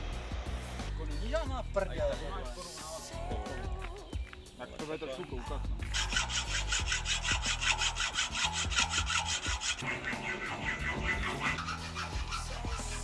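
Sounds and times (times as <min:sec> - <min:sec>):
background music with bass: 0:00.0 - 0:13.0
hand saw cutting: 0:05.9 - 0:13.0.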